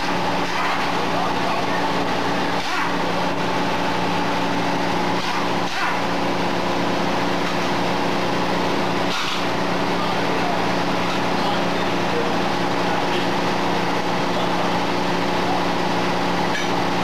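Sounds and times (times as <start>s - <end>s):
engine running: 0.0s - 17.0s.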